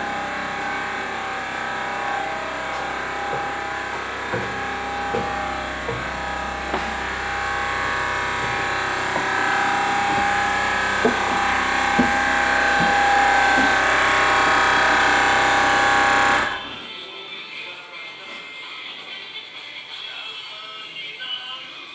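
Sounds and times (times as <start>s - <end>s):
footsteps on wooden stairs: 0.0s - 16.6s
machine hum with whine: 0.0s - 16.9s.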